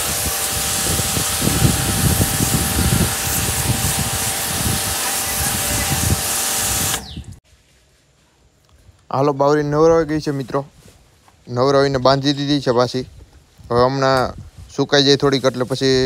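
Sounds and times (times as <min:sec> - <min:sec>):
hose water jet spraying: 0:00.0 - 0:07.4.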